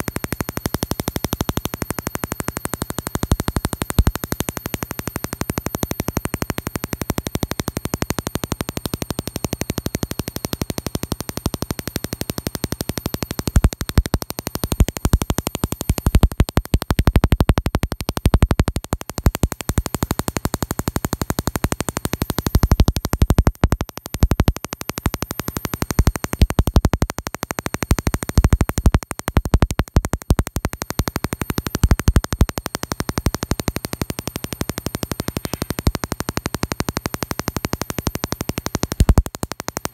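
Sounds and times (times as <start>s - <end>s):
tesla coil sparks crackling: 0.0s - 39.9s.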